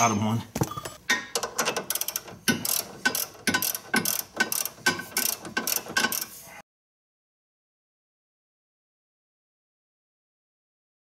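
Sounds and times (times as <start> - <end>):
ratchet wrench clicking: 1.4 - 6.4.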